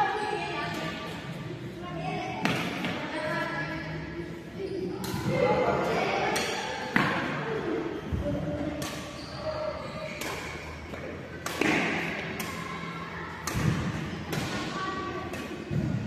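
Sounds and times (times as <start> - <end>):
racket striking shuttlecock: 6.3 - 7.2, 8.8 - 9.2, 10.2 - 10.6, 11.4 - 12.6, 13.4 - 14.7.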